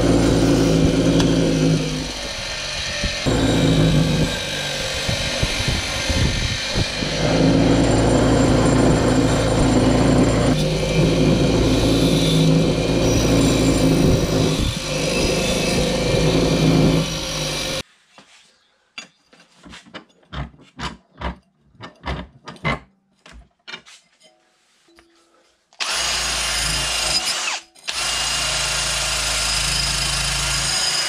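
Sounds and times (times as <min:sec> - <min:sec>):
bench grinder grinding steel: 0:00.0 - 0:17.8.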